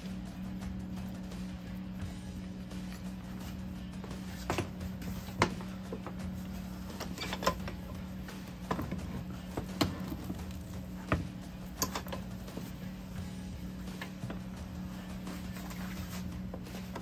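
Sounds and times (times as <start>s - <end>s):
steady low hum: 0.0s - 17.0s
metal tools clinking: 11.8s - 12.3s.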